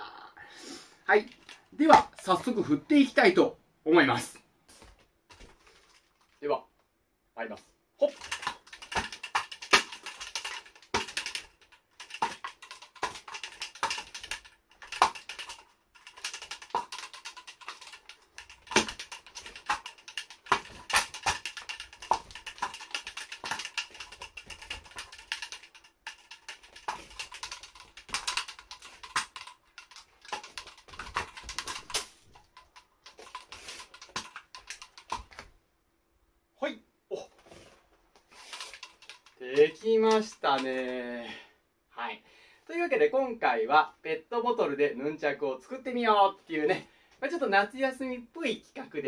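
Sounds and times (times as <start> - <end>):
plastic bottles knocking and clacking: 1.2 - 2.6, 8.0 - 35.5, 37.5 - 41.0.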